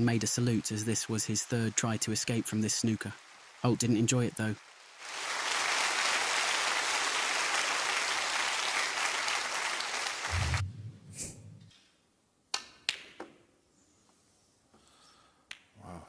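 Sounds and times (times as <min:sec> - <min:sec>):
crowd applauding: 0:01.3 - 0:10.6
low hum: 0:10.3 - 0:11.7.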